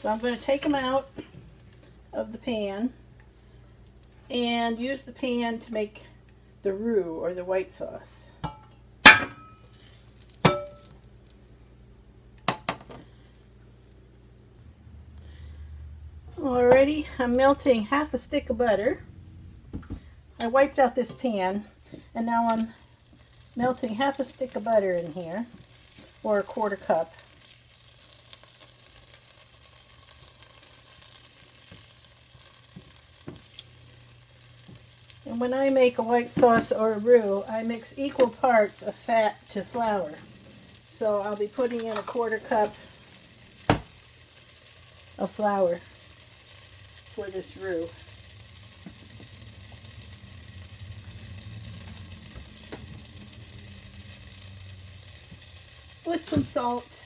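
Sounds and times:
butter sizzling in a pan: 0:00.0 - 0:02.7, 0:09.0 - 0:14.4, 0:17.8 - 0:57.0
steady low hum: 0:00.0 - 0:25.2
spatula tapping a pan: 0:10.4 - 0:10.9.

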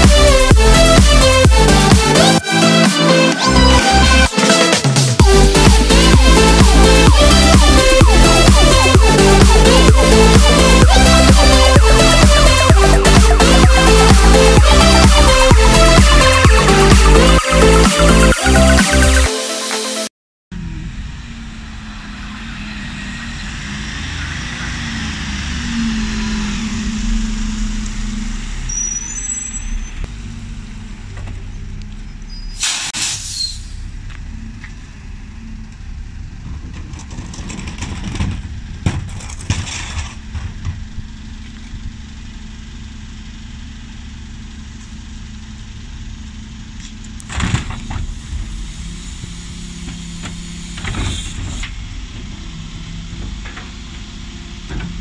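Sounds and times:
diesel lorry engine: 0:00.0 - 0:19.7, 0:20.5 - 0:55.0
air brake hiss: 0:32.4 - 0:33.9.

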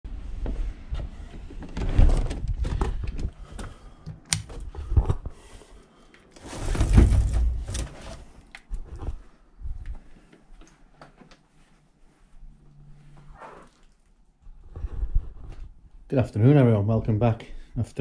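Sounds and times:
knocks thuds and rustling: 0:06.7 - 0:08.0.

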